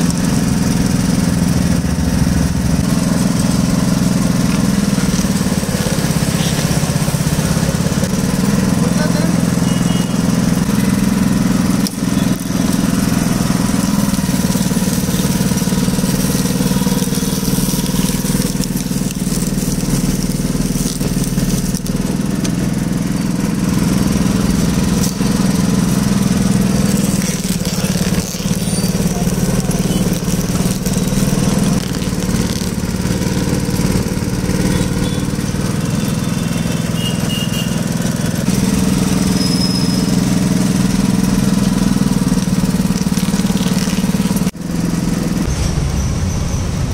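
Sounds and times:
juice crusher motor humming: 0.0 - 45.5.

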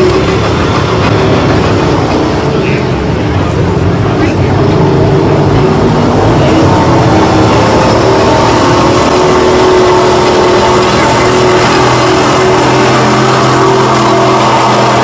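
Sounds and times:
pickup truck engine under load: 0.0 - 15.0.

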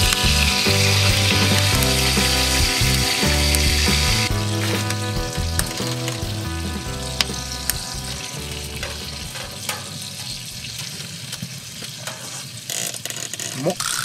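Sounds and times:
soft background music: 0.0 - 11.0
oil sizzling in a frying pan: 0.0 - 12.7.

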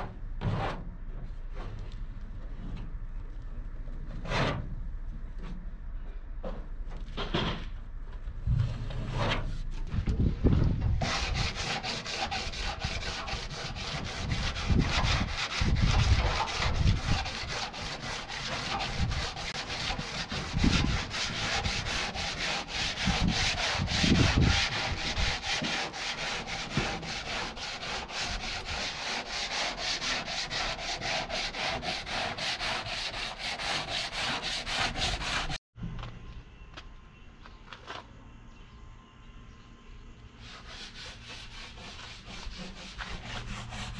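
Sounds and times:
sandpaper rubbing sheet metal: 11.0 - 35.6, 40.4 - 43.9.

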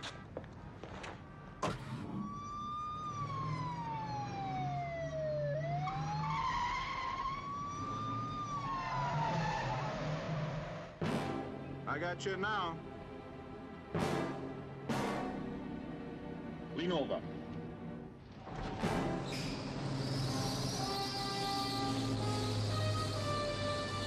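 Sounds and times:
police siren wailing: 1.7 - 10.9.

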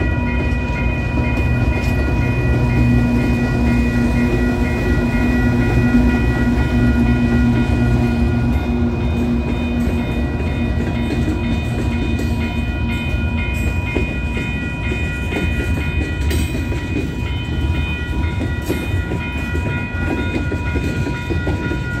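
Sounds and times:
crossing bell ringing: 0.0 - 22.0
diesel locomotive engine drone: 0.0 - 22.0
freight cars rumbling over rails: 0.0 - 22.0.

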